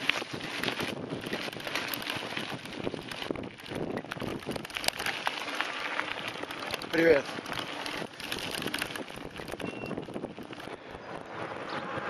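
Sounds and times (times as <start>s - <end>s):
bike tyres crunching on dirt: 0.0s - 10.9s
bike rattling: 0.0s - 12.0s
wind on microphone: 7.9s - 12.0s.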